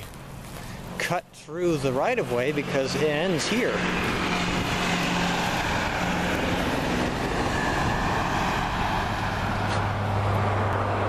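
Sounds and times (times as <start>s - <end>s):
low engine hum: 0.0s - 11.0s
tyre and road noise: 0.0s - 11.0s.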